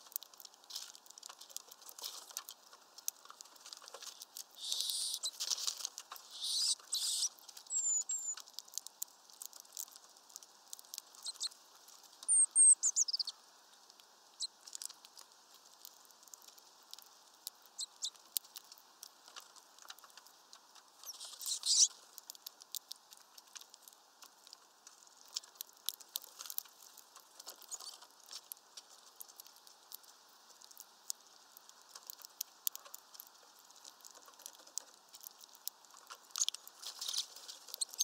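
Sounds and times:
beaks pecking and tapping: 0.0s - 38.0s
high bird chirps: 4.6s - 5.4s, 6.3s - 8.4s, 11.2s - 11.5s, 12.3s - 13.3s, 21.1s - 21.9s.

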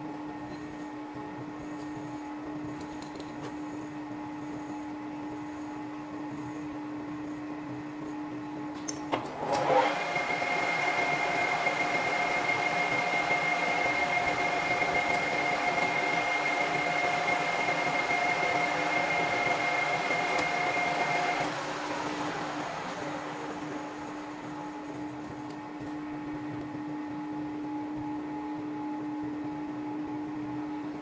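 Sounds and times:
metal lathe whining: 9.4s - 25.1s.

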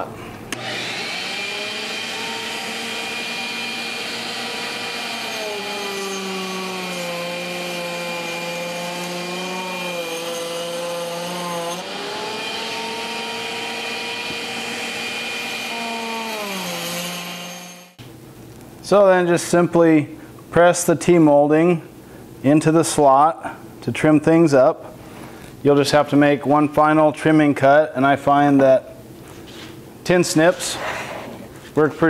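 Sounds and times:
router cutting wood: 0.5s - 18.0s.

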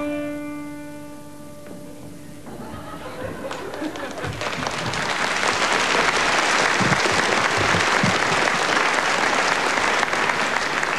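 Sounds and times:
audience applauding: 3.0s - 10.9s.

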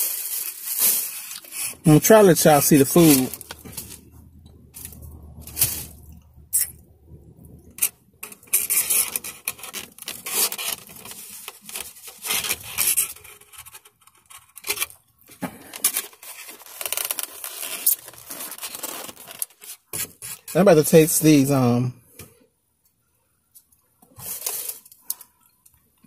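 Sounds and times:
foam box rubbing and scraping: 0.0s - 4.1s, 4.8s - 6.0s, 7.8s - 14.9s, 15.8s - 20.6s, 24.2s - 24.8s.

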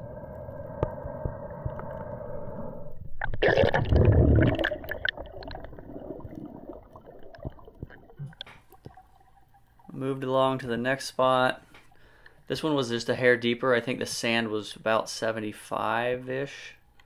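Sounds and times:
underwater gurgling rush of bubbles: 0.4s - 9.8s.

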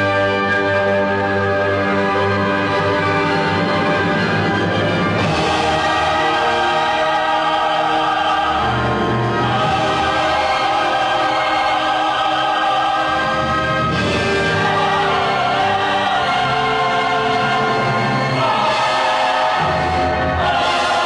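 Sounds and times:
orchestral music: 0.0s - 21.0s
choir singing held notes: 5.2s - 21.0s.

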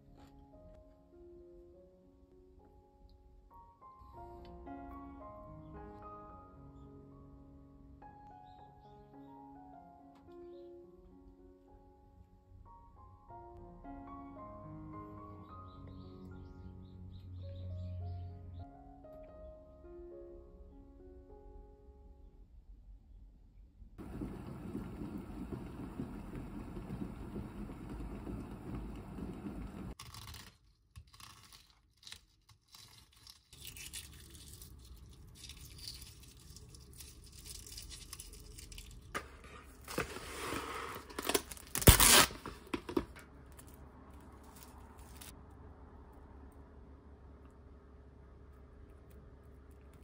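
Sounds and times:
low hum: 24.0s - 30.0s
egg shell cracking: 30.0s - 39.2s
plastic bag crinkling: 30.0s - 45.3s.

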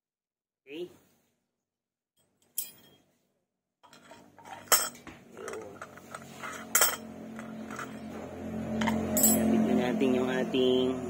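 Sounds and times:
metal tool clinking and scraping: 2.4s - 3.1s, 3.8s - 9.6s.

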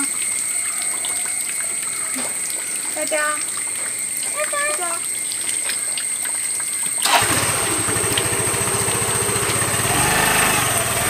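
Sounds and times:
scooter engine starting and idling: 7.0s - 11.0s.

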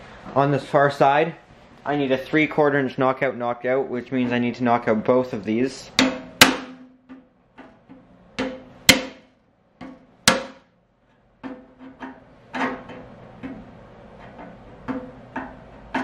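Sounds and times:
hollow metal box ringing: 5.9s - 7.2s, 10.2s - 10.7s
metallic knocks on steel box: 6.0s - 7.2s, 8.4s - 10.7s.

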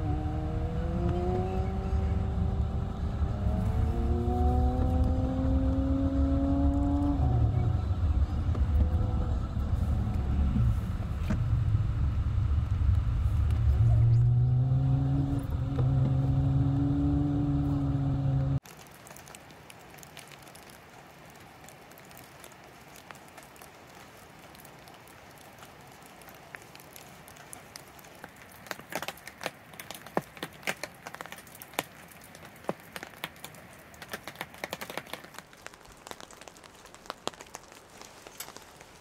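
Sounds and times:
car engine running: 0.0s - 18.6s
rumble of tyres: 0.0s - 39.0s.

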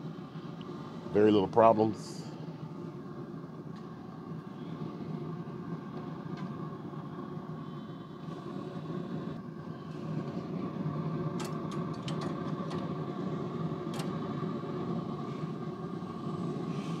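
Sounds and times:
pellet smoker humming: 0.0s - 17.0s.

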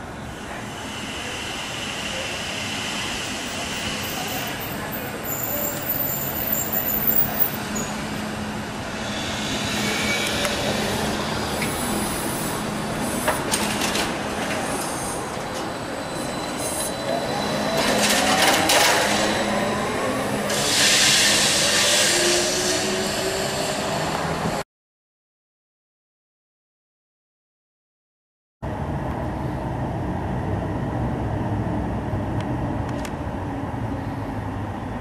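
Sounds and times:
trolleybus hum: 0.0s - 24.6s, 28.6s - 35.0s
burst of hiss: 20.5s - 22.3s.

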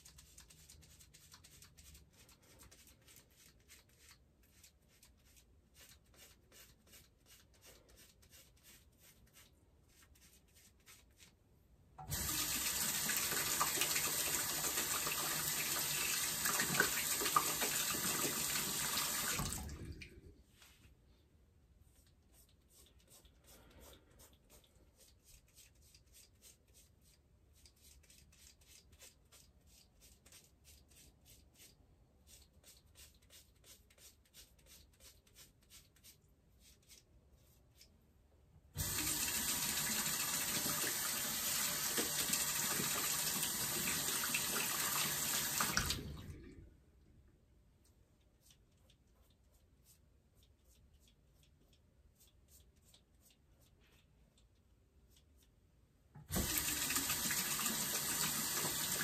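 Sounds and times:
sink tap running: 12.0s - 19.7s, 38.8s - 46.1s, 56.3s - 59.0s.

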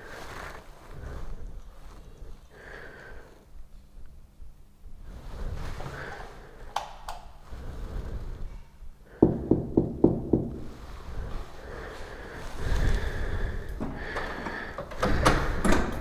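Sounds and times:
knuckles knocking on wooden door: 9.2s - 10.7s.

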